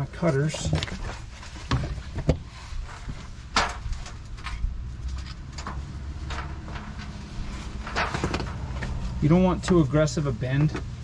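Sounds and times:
steady low rumble: 2.5 - 11.0.

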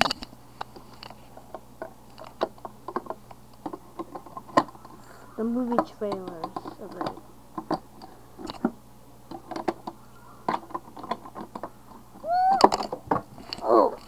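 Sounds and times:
handling clicks and knocks: 0.0 - 5.0, 5.6 - 14.0
child crying out: 12.2 - 12.8, 13.6 - 14.0.

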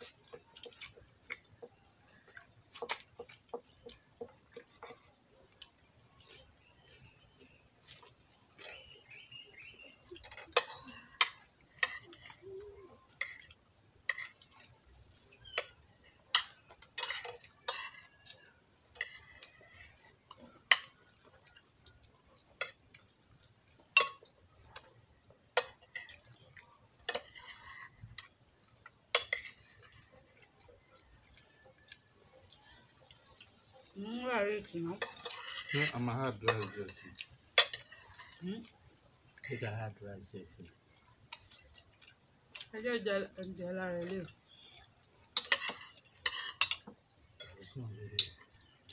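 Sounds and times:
spoons clinking on ceramic plate: 15.4 - 18.2, 23.9 - 24.3, 25.6 - 26.1, 29.1 - 29.7, 35.0 - 38.3, 45.4 - 48.6.

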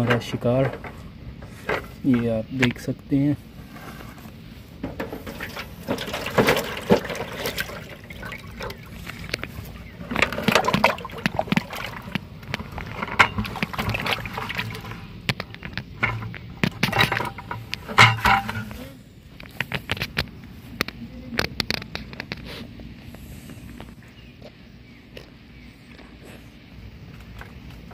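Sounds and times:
water sloshing and splashing: 4.9 - 18.9.

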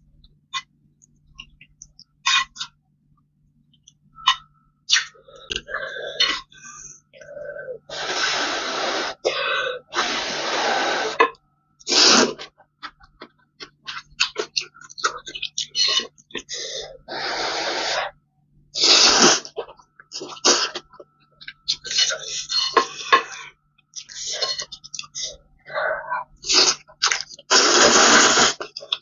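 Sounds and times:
noodles being slurped: 7.9 - 9.2, 11.9 - 12.5, 18.8 - 19.6, 26.4 - 29.0.

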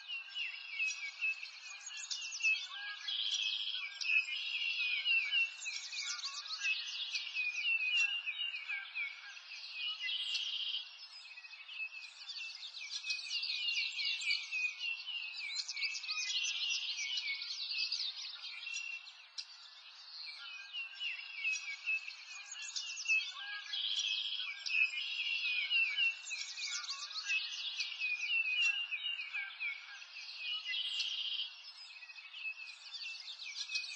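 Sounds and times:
birds singing: 0.0 - 33.9.

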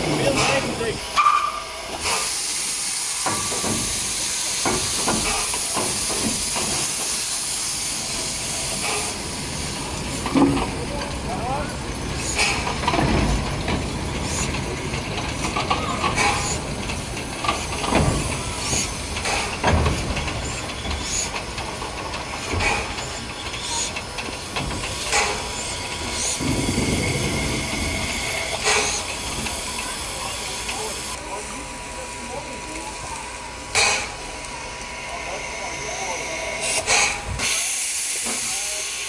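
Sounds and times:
steam locomotives hissing: 0.0 - 39.0
metal knocks and clanks: 12.4 - 23.1.

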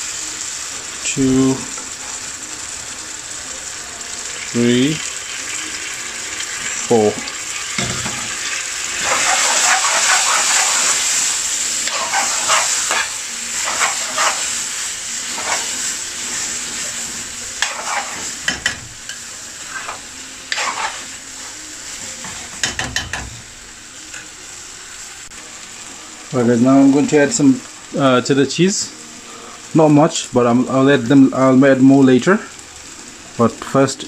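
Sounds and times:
gravy sizzling in pan: 0.0 - 34.0
metal spoon scraping pan: 9.0 - 11.2, 11.8 - 14.6, 15.3 - 15.8, 17.6 - 21.1.

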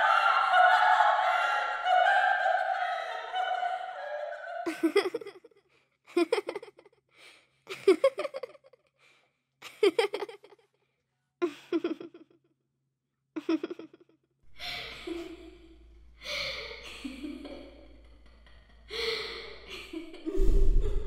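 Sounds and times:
girls giggling: 0.0 - 5.5, 6.1 - 6.8, 7.7 - 8.6, 9.6 - 10.5, 13.4 - 13.9, 14.6 - 21.0
low drone: 14.7 - 21.0
loud deep boom: 20.3 - 21.0.

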